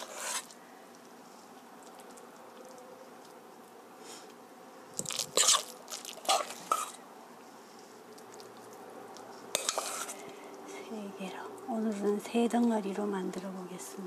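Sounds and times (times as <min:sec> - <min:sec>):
batter crackling in frying pan: 0:05.0 - 0:07.0, 0:08.1 - 0:10.3.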